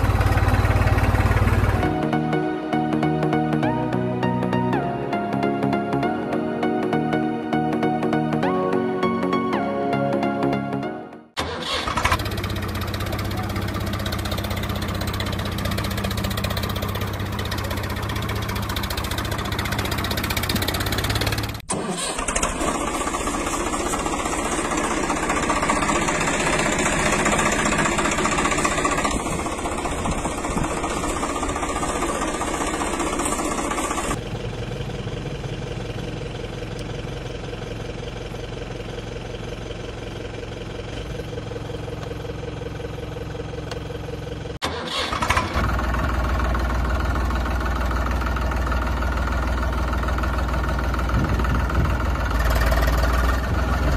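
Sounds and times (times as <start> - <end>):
engine running: 0.0 - 10.3, 11.3 - 53.9
tractor engine starting and running: 0.0 - 53.9.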